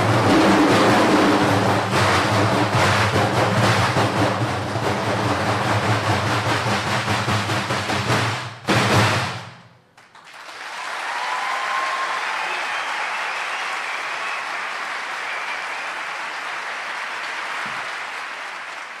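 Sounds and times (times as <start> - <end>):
audience applause: 10.0 - 19.0.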